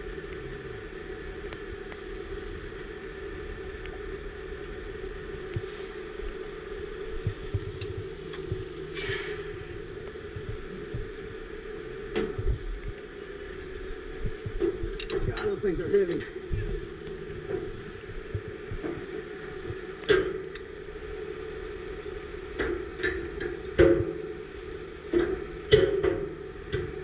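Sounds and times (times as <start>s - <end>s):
brief hiss: 9.0s - 9.7s.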